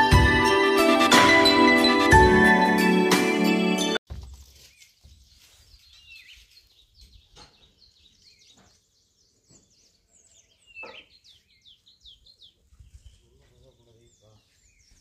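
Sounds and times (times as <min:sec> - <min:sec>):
small birds chirping: 0:04.3 - 0:15.0.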